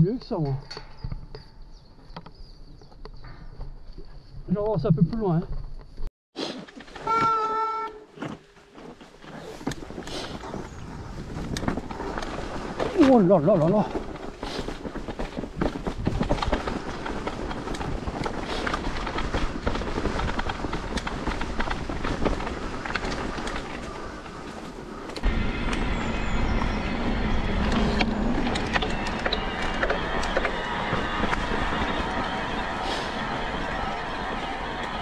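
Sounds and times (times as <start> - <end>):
bike rattling on dirt trail: 8.4 - 35.0
low rumble: 24.8 - 35.0.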